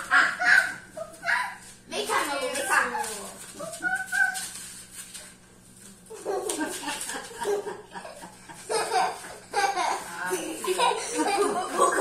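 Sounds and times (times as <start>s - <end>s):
children laughing: 0.0s - 1.7s, 6.1s - 12.0s.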